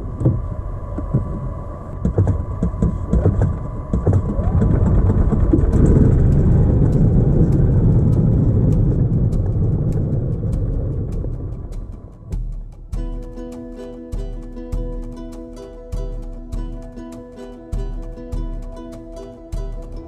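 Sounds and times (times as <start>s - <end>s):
golf cart running rumble: 0.0s - 12.9s
golf cart rattles and knocks: 2.0s - 13.2s.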